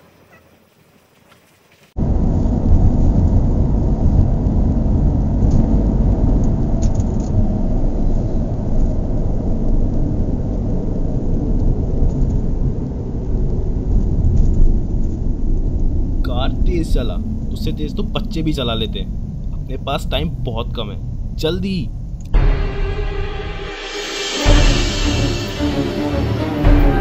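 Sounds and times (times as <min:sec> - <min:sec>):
car engine and road rumble: 0:01.8 - 0:22.4.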